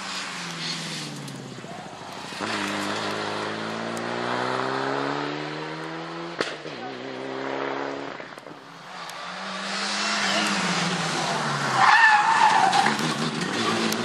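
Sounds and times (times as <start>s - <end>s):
rally car engine under throttle: 0.0s - 14.0s
tyres squealing: 9.9s - 14.0s.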